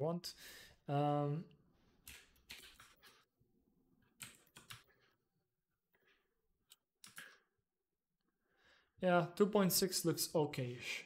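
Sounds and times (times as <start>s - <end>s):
keyboard keystrokes: 2.0s - 3.1s, 4.2s - 5.0s, 6.7s - 7.4s.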